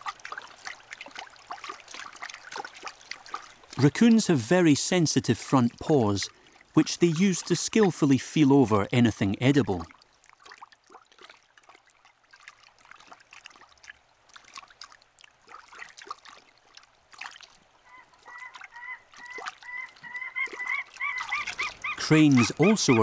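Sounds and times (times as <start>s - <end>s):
splashing in shallow water: 0.0s - 23.0s
cranes honking: 19.7s - 23.0s.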